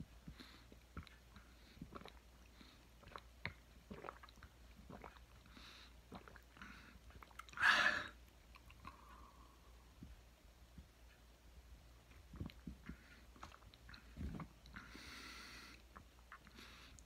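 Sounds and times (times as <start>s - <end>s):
mouth clicks and lip smacks: 0.3s - 5.5s, 6.1s - 7.6s, 8.2s - 9.3s, 12.1s - 14.8s, 15.8s - 17.0s.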